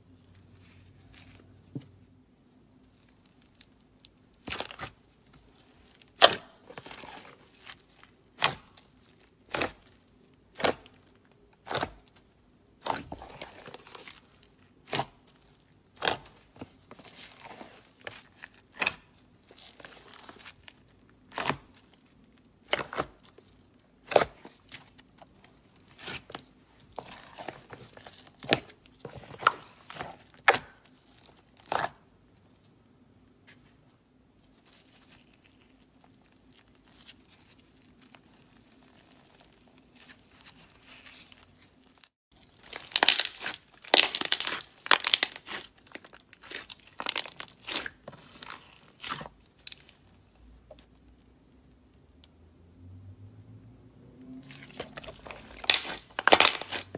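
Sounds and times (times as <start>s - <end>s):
slime popping and crackling: 42.4s - 50.1s, 54.6s - 56.9s.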